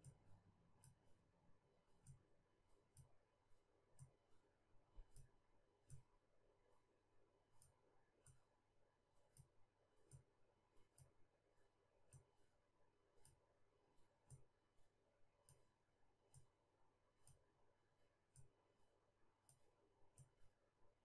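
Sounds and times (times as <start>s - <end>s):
faint computer mouse clicks: 19.4s - 19.6s.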